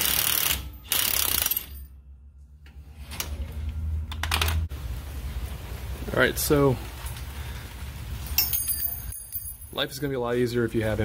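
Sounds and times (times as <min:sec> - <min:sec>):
impact wrench hammering: 0:00.0 - 0:01.8.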